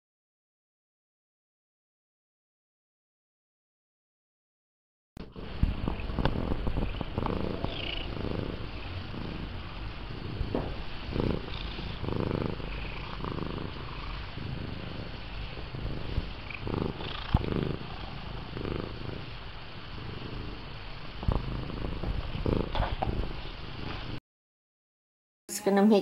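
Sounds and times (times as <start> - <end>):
cat purring: 5.2 - 24.2.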